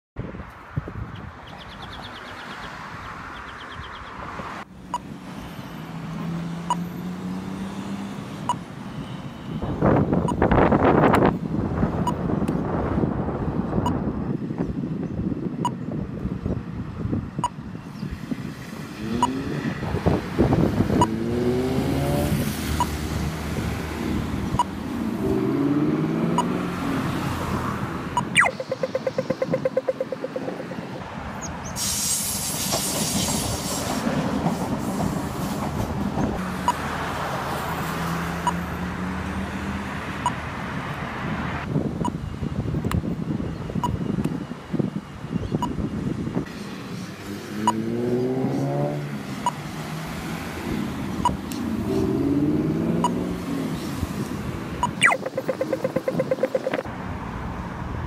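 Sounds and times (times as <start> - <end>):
road traffic: 0.2 - 58.0
engines revving: 4.6 - 11.3, 18.7 - 31.0, 46.5 - 56.9
steady engine drone: 28.0 - 31.0
bird rapid repeated calls: 28.2 - 30.8, 54.8 - 56.9.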